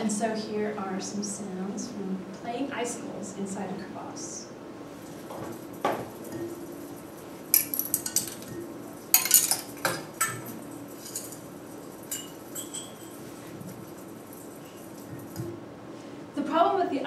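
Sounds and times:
steady low hum: 0:00.0 - 0:17.0
icicles clinking and tinkling: 0:05.3 - 0:15.6.

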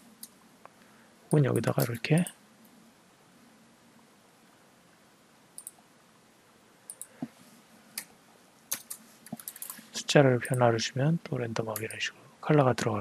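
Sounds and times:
mouse clicks: 0:05.6 - 0:05.8, 0:06.9 - 0:07.3, 0:08.7 - 0:09.8.

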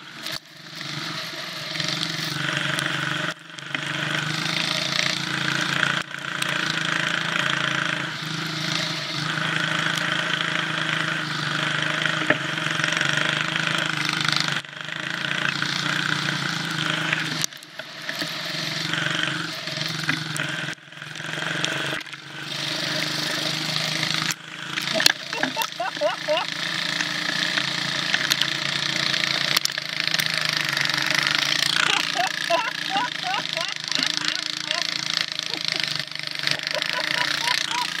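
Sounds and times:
small engine running hard: 0:00.0 - 0:38.0.

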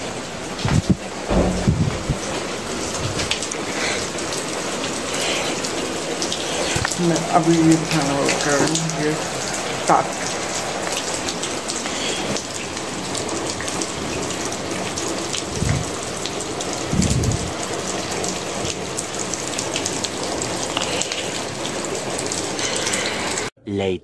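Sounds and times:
heavy rain on hard surfaces: 0:00.0 - 0:23.5
short low thuds: 0:00.7 - 0:03.3.

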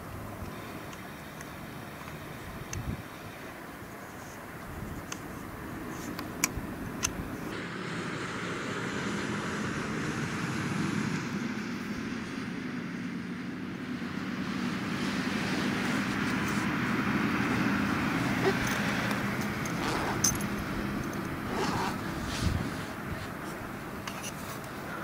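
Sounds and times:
wind noise on microphone: 0:02.4 - 0:03.1, 0:04.6 - 0:05.1, 0:18.3 - 0:23.8.

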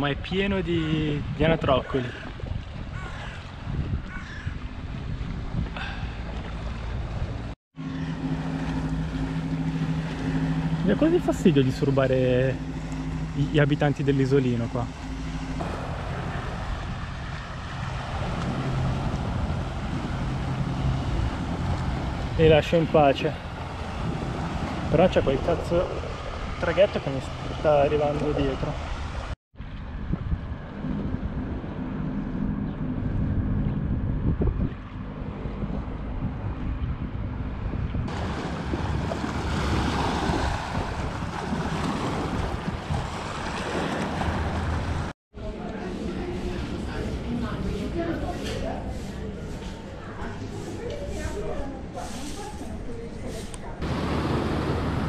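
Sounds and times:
wind buffeting microphone: 0:00.0 - 0:14.0, 0:14.8 - 0:27.7, 0:28.3 - 0:45.1
water wash: 0:04.6 - 0:30.9, 0:38.1 - 0:55.0
ferry engine droning: 0:04.6 - 0:55.0.

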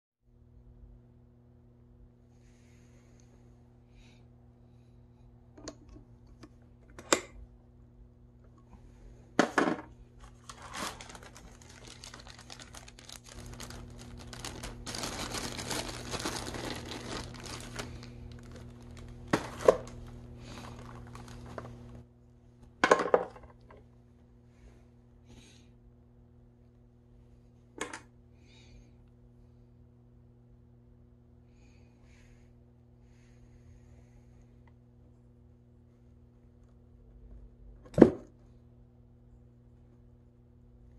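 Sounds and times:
faint steady hum: 0:00.3 - 0:40.9
plastic bag crinkling: 0:10.2 - 0:22.0.

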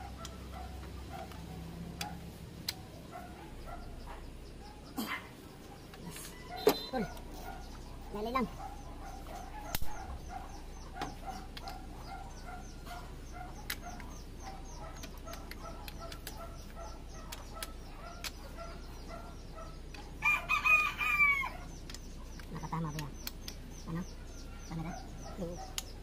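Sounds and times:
sharp clicks: 0:13.5 - 0:14.3, 0:14.9 - 0:18.5, 0:21.8 - 0:23.9
rooster crowing: 0:20.2 - 0:21.7.

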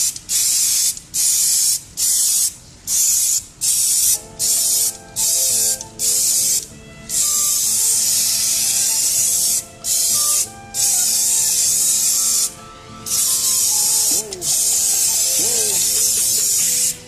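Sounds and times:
spray can hissing: 0:00.0 - 0:17.0.

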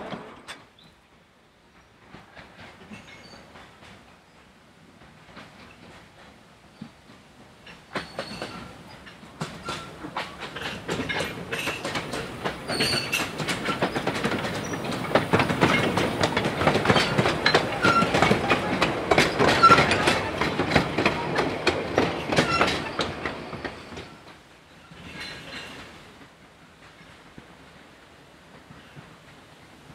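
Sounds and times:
train wheels clicking over rail joints: 0:00.0 - 0:00.9, 0:05.0 - 0:27.6.

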